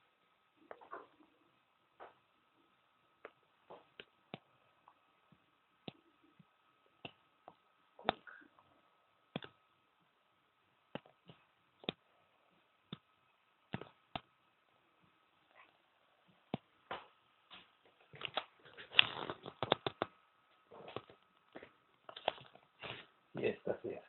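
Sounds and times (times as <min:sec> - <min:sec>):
room hiss: 0:00.0 - 0:24.0
faint clicks and ticks: 0:10.8 - 0:14.4, 0:17.8 - 0:22.7.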